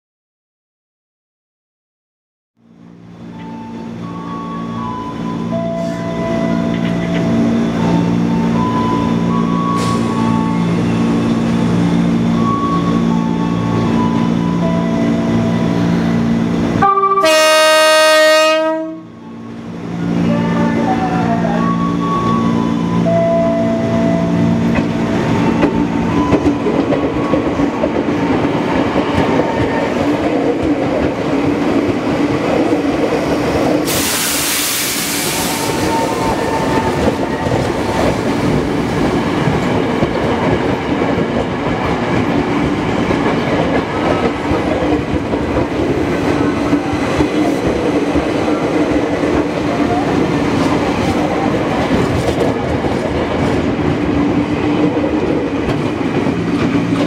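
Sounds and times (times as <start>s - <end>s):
electric train passing: 2.6s - 57.0s
loud air hiss: 33.8s - 36.2s.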